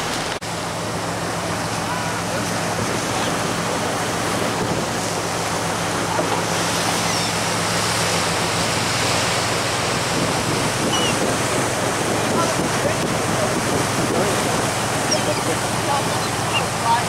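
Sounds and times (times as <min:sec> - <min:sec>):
boat engine drone: 0:00.0 - 0:17.0
boat wake: 0:00.0 - 0:17.0
gull cries: 0:06.9 - 0:07.5, 0:10.9 - 0:11.2, 0:15.0 - 0:16.8.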